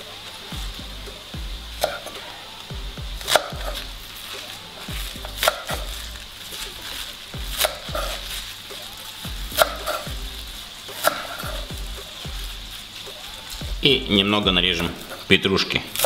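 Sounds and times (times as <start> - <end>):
background music with beat: 0.0 - 15.1
knife cutting onions on board: 1.8 - 2.3, 3.2 - 12.4.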